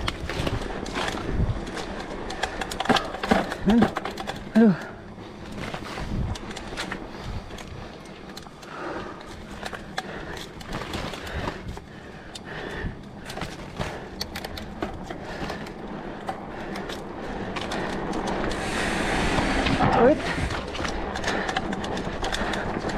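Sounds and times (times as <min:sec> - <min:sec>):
bike rattling over bumps: 0:00.0 - 0:22.9
bike tyres on dirt: 0:00.0 - 0:22.9
rushing noise: 0:17.9 - 0:22.9.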